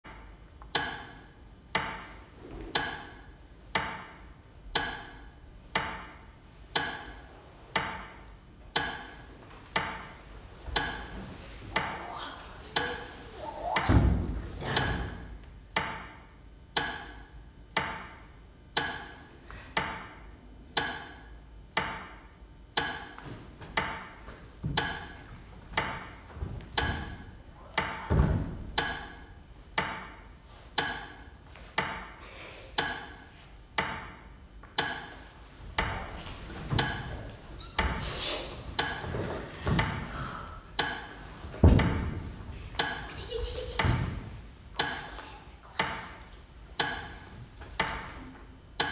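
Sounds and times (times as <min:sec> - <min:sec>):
clock ticking: 0:00.7 - 0:02.1, 0:02.7 - 0:10.1, 0:10.8 - 0:11.1, 0:12.7 - 0:13.1, 0:15.7 - 0:19.2, 0:19.8 - 0:23.2, 0:23.8 - 0:24.2, 0:24.8 - 0:26.2, 0:26.8 - 0:27.2, 0:27.8 - 0:28.1, 0:28.8 - 0:30.2, 0:30.8 - 0:32.2, 0:32.8 - 0:33.2, 0:33.8 - 0:35.2, 0:36.7 - 0:37.1, 0:38.8 - 0:39.1, 0:40.8 - 0:41.2, 0:42.7 - 0:45.2, 0:45.8 - 0:48.2
deep thuds: 0:23.3 - 0:29.0, 0:41.3 - 0:42.8.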